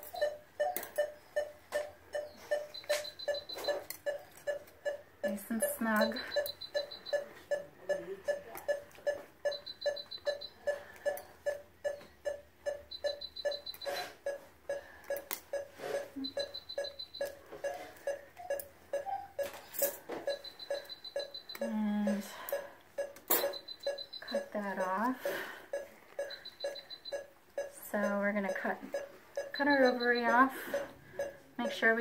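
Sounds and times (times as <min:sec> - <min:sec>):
monitor beeping: 0:00.0 - 0:32.0.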